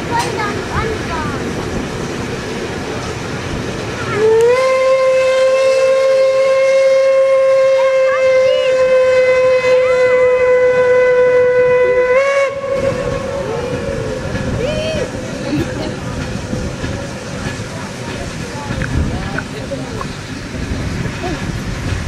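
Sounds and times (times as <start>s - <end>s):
steam locomotive whistle: 4.2s - 14.2s.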